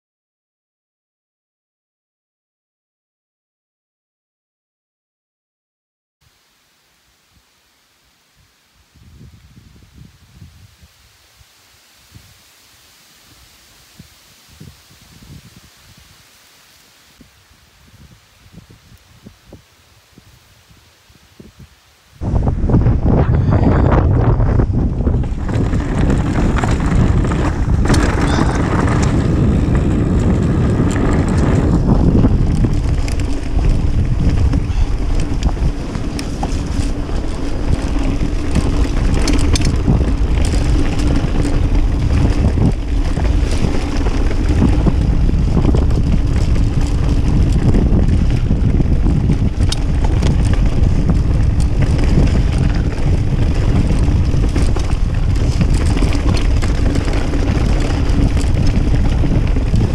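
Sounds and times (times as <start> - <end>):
wind rumble on microphone: 8.3 - 59.9
bike clicks and rattles: 24.2 - 59.9.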